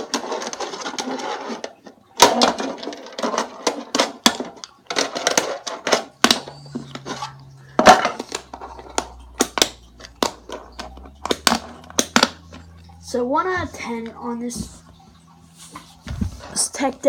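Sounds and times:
fingerboard wheels clacking: 0.0s - 13.0s.

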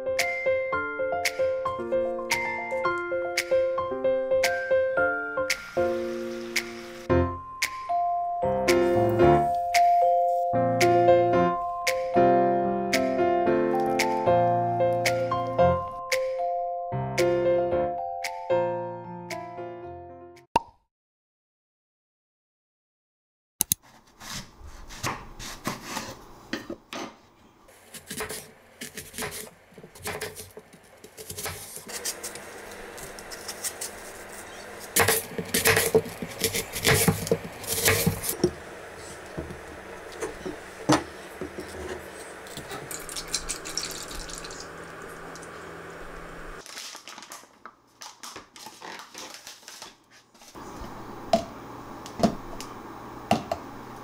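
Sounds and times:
knife cutting apple on board: 27.8s - 42.9s.

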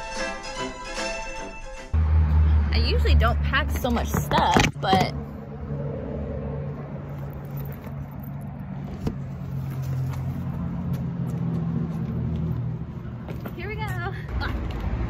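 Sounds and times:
car engine humming: 2.0s - 14.1s.

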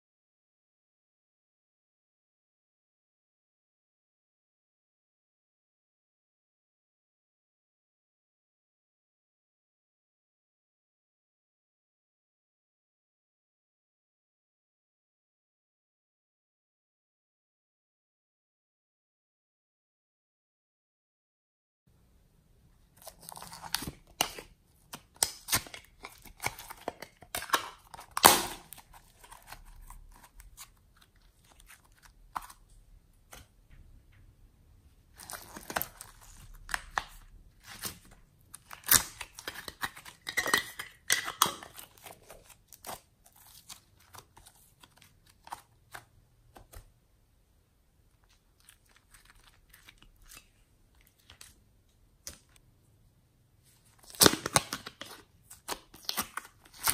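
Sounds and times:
slime sticky tearing and crackling: 23.0s - 32.6s, 35.1s - 40.1s.

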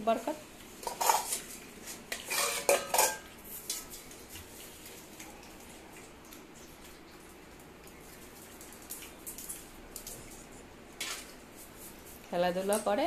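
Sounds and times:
steel bowl clanking: 0.8s - 3.3s.

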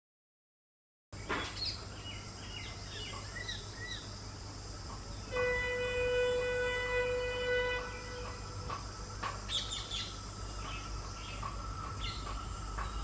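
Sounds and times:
birds chirping: 1.2s - 5.8s, 7.4s - 13.0s
locomotive horn blast: 5.3s - 8.8s.

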